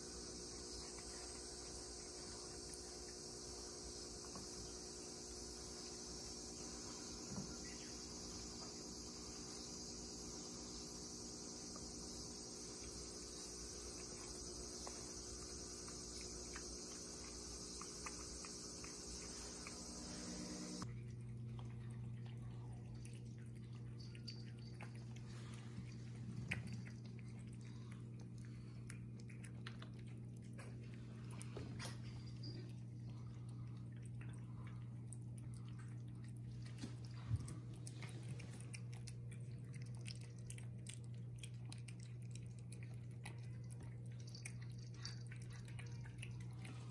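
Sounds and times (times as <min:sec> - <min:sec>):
high steady hiss: 0:00.0 - 0:20.8
cats chewing and licking: 0:00.0 - 0:46.9
low steady hum: 0:00.0 - 0:46.9.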